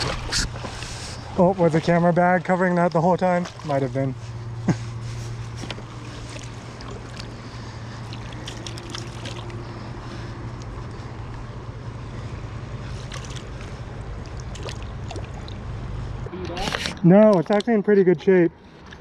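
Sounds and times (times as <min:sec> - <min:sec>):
small clicks and splashes: 0:05.6 - 0:09.7, 0:12.8 - 0:15.8, 0:16.6 - 0:17.8, 0:18.7 - 0:19.0.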